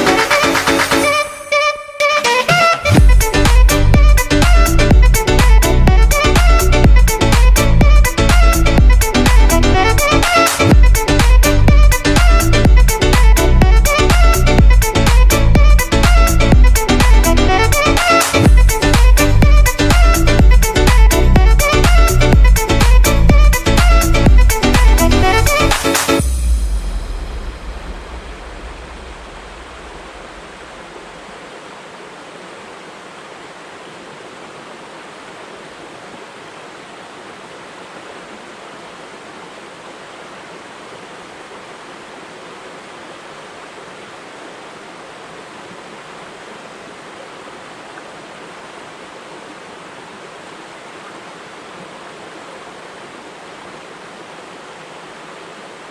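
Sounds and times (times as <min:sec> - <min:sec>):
music: 0:00.0 - 0:29.5
creek flowing over rocks: 0:02.4 - 0:55.9.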